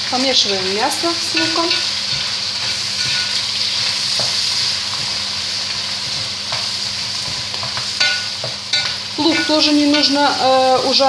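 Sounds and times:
meat and onions sizzling in oil: 0.0s - 11.0s.

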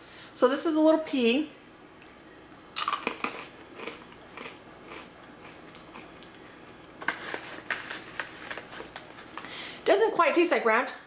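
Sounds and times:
person chewing crunchy snack: 2.8s - 6.4s.

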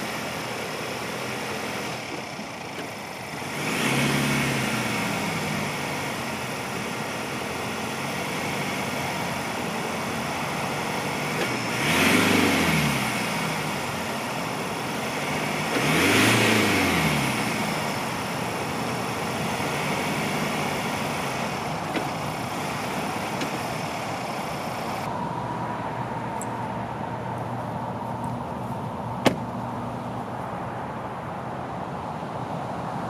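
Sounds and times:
truck engine revving: 0.0s - 30.5s
truck door shutting: 23.3s - 23.8s, 29.2s - 29.8s.

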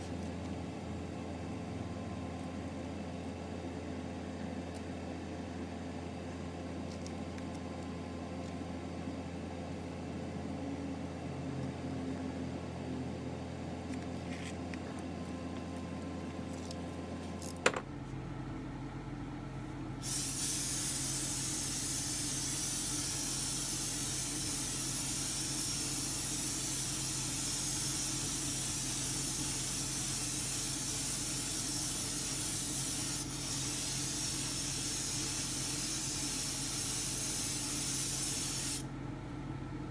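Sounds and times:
low steady hum: 0.0s - 39.9s
spray gun hissing: 20.0s - 38.8s.

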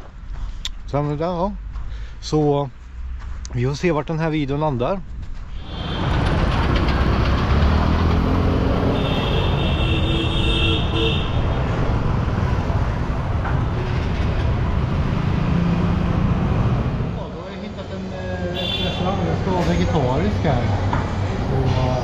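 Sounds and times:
vehicle horn: 5.6s - 6.3s, 8.8s - 11.7s, 18.5s - 19.2s
motorbikes passing: 5.6s - 22.0s.

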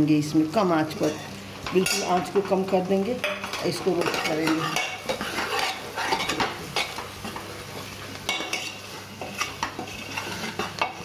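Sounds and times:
soft sizzle of frying: 0.0s - 11.0s
spoon scraping and clinking pot: 3.2s - 7.4s, 8.3s - 11.0s.

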